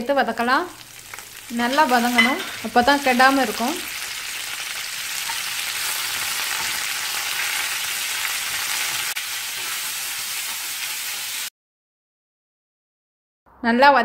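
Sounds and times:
leaves sizzling in hot oil: 0:00.0 - 0:11.5
spatula stirring in pan: 0:00.8 - 0:11.3.

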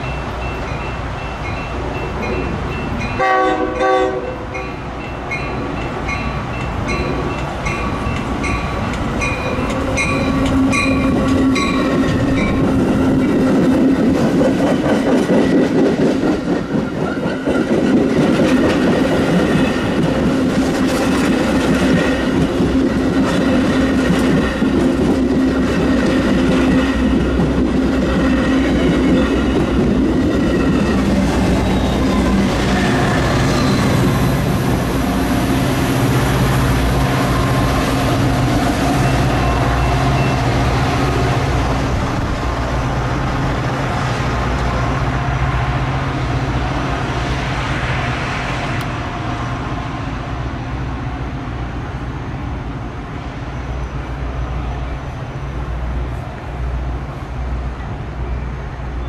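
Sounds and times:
crossing warning bell dinging: 0:00.0 - 0:14.1, 0:16.6 - 0:41.7
train rumble passing: 0:00.0 - 0:59.0
train horn: 0:03.2 - 0:04.6
wheels clacking over rail joints: 0:05.2 - 0:41.0.

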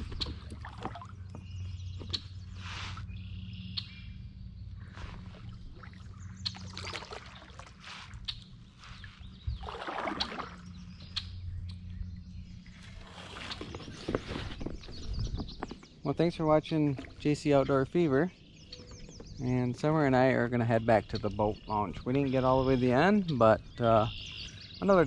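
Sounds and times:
paddle swishing through water: 0:00.0 - 0:03.2, 0:04.8 - 0:10.8, 0:12.7 - 0:15.6
low hum: 0:00.0 - 0:19.9
birds chirping: 0:00.0 - 0:25.0.

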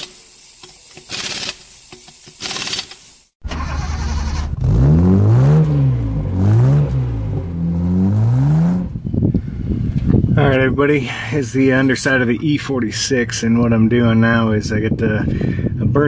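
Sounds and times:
power tool bursts: 0:00.0 - 0:04.6
car engine revving: 0:03.5 - 0:09.1.

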